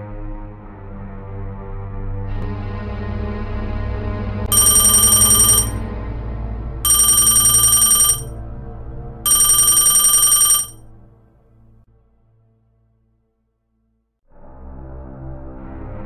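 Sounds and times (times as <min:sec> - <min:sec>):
telephone bell ringing: 0:04.5 - 0:05.8, 0:06.9 - 0:08.3, 0:09.3 - 0:10.8.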